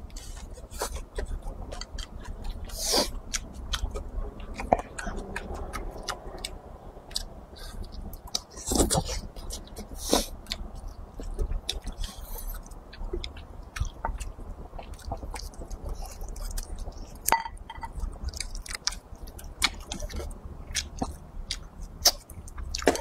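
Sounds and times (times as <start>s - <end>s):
person chewing wetly: 0.0s - 23.0s.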